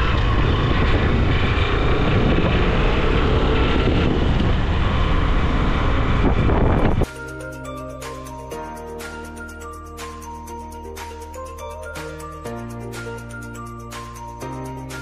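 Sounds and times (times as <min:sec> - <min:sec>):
motorcycle engine running: 0:00.0 - 0:07.0
wind rush on microphone: 0:00.0 - 0:07.1
background music: 0:07.0 - 0:15.0.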